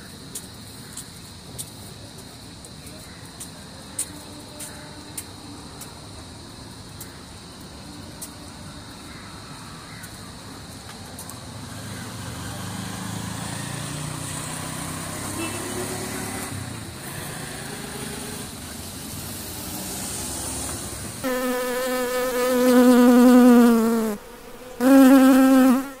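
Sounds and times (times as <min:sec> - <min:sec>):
bee buzzing: 0:21.2 - 0:26.0.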